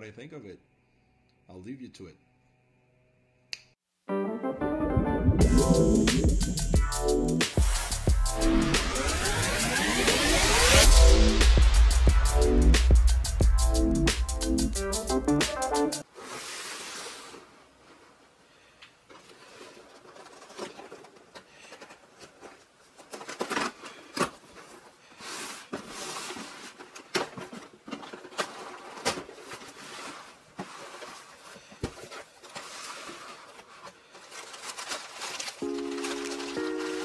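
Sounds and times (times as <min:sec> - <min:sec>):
packing paper rustling: 0:19.1 - 0:37.0
cardboard box scraping and knocking: 0:25.2 - 0:34.0
packing tape slit: 0:32.1 - 0:37.0.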